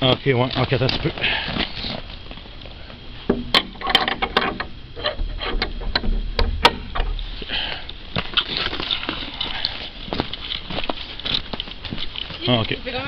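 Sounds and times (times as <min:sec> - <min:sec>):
footsteps on snow: 0:08.1 - 0:12.6.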